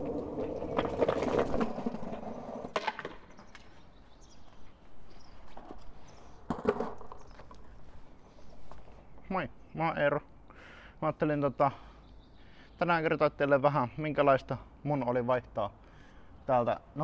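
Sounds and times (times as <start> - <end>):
skateboard deck clacking: 0.0 - 3.7, 6.5 - 7.2
skateboard wheels rolling on pavement: 0.0 - 9.0
board clacking on concrete steps: 0.3 - 3.7, 6.5 - 7.6.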